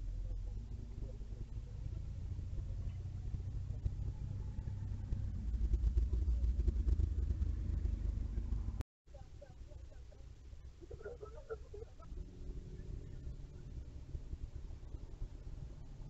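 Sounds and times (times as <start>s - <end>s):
car engine rumble driving past: 0.0s - 8.8s, 11.2s - 16.0s.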